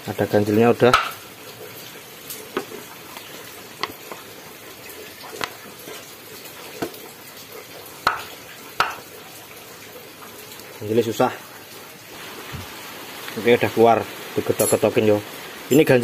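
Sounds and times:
steady hiss: 12.1s - 16.0s.

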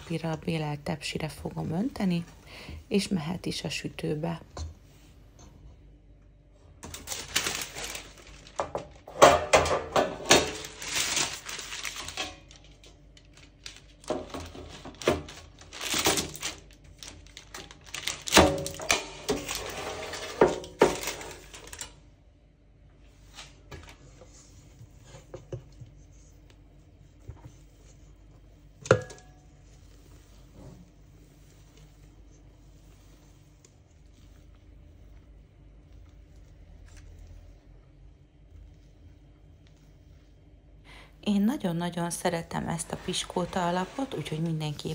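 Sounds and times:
baking paper crinkling: 6.8s - 22.0s, 29.5s - 37.7s, 41.6s - 44.9s.

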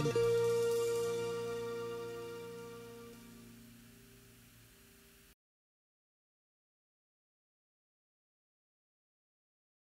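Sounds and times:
live band final chord ringing: 0.0s - 5.2s.

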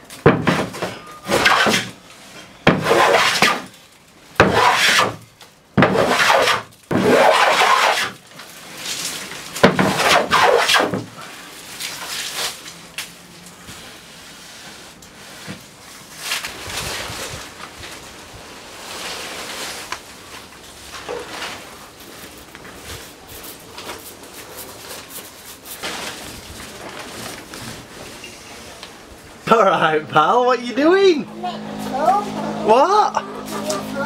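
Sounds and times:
hand plane shaving wood: 2.7s - 3.7s, 4.4s - 5.2s, 5.8s - 8.2s, 9.8s - 11.0s.

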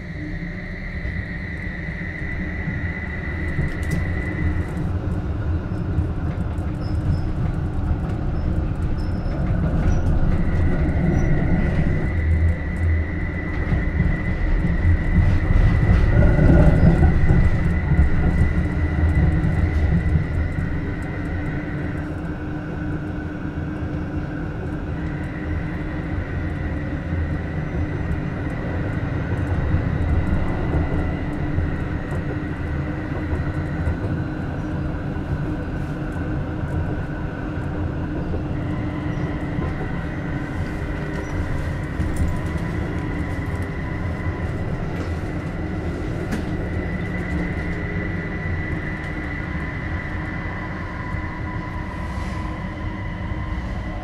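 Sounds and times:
tram wheels rumbling on rails: 0.0s - 54.0s.

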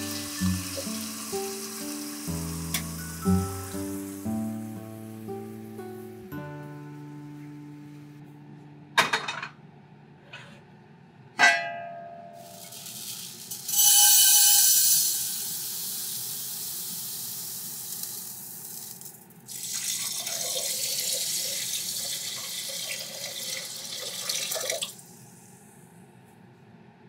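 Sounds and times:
water pouring into a pot: 0.0s - 4.3s, 12.4s - 25.2s.

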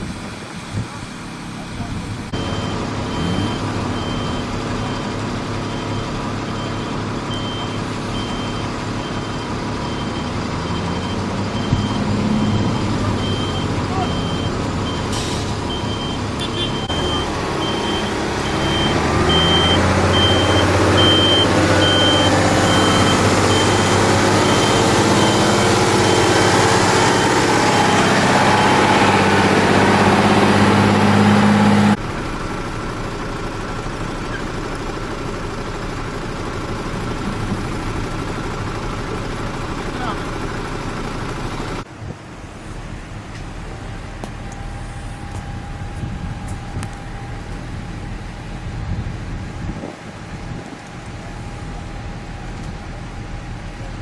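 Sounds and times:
diesel truck engines running: 0.0s - 54.0s
reversing alarm beeping: 2.3s - 29.3s, 44.4s - 47.9s.

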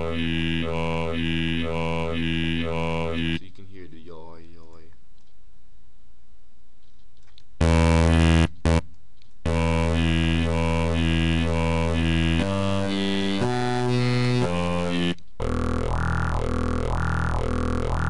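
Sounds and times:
synth wobble bass: 0.0s - 3.4s, 7.6s - 8.8s, 9.5s - 18.0s.

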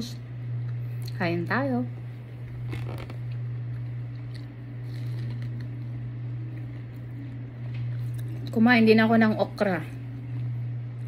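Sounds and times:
steady low hum: 0.0s - 11.0s
person chewing corn: 2.7s - 8.5s.

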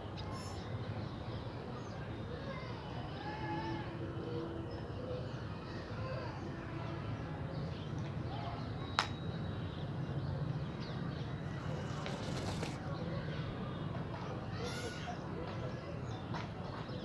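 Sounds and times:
low town hum: 0.0s - 17.0s
birds chirping: 7.1s - 15.2s.

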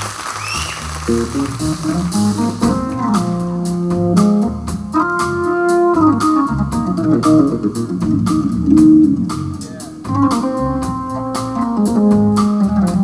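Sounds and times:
blues band playing: 0.0s - 13.0s
organ holding chords: 1.1s - 13.0s
drum and cymbal strikes: 1.5s - 13.0s.

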